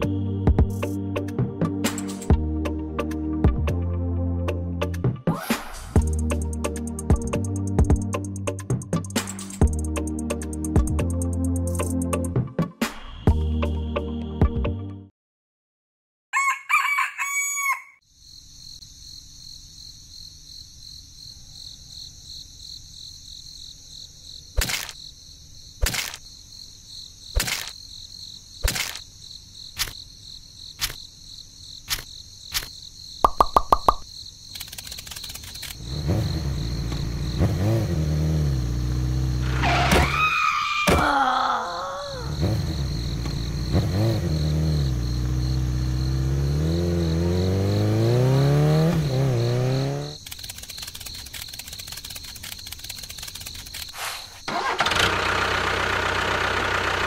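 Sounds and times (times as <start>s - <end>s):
rooster crowing: 16.3s - 18.0s
sharp clicks: 33.3s - 35.8s, 50.1s - 54.0s
motorcycle engine revving: 35.7s - 40.2s, 42.2s - 52.2s.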